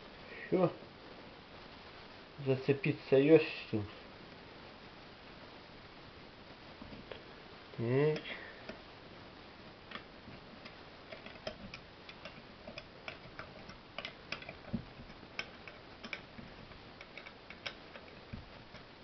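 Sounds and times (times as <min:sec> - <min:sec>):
spanner clicking on nut: 0:09.9 - 0:18.9.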